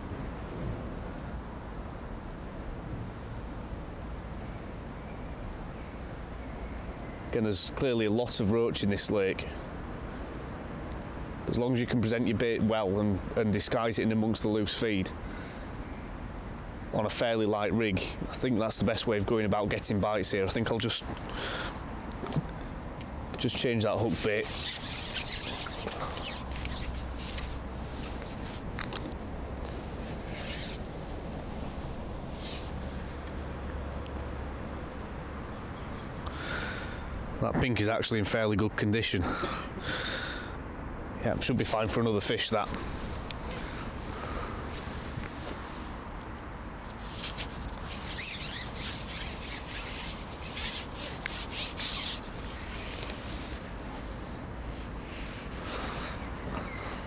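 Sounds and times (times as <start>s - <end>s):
fishing tackle rustling and scraping: 23.4s - 33.5s, 42.5s - 57.0s.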